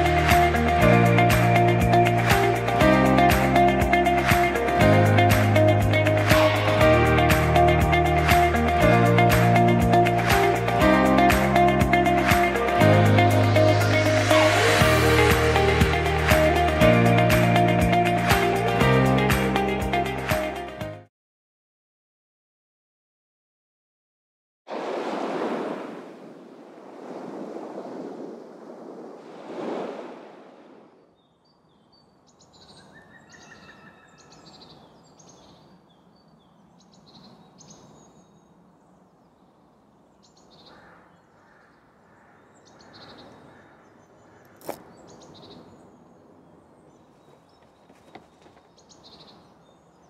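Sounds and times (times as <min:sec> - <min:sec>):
birds chirping: 0:31.0 - 0:50.0.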